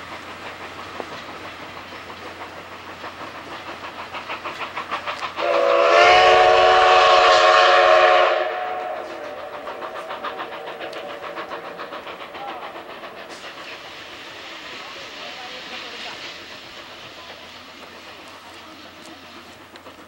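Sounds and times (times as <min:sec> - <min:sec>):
hiss of steam: 0:00.0 - 0:20.0
steam locomotive exhaust beats: 0:00.0 - 0:20.0
steam whistle blast: 0:05.4 - 0:09.4.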